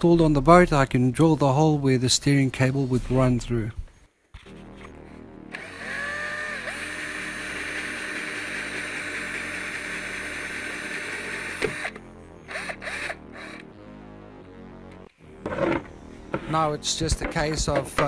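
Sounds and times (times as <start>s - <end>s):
short bursts of drilling: 5.5s - 13.6s
drill with hole saw grinding: 5.5s - 13.7s.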